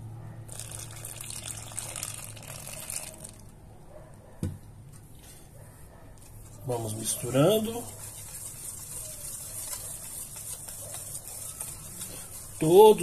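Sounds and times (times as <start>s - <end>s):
water pouring into a metal bowl: 0.5s - 3.3s
soft knock: 4.4s - 4.6s.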